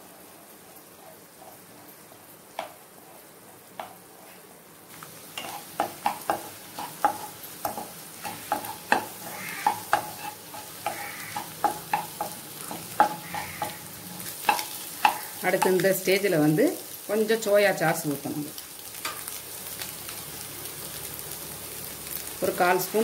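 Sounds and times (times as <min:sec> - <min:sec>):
food sizzling in a wok: 0:00.0 - 0:23.0
spatula scraping a wok: 0:05.3 - 0:15.4.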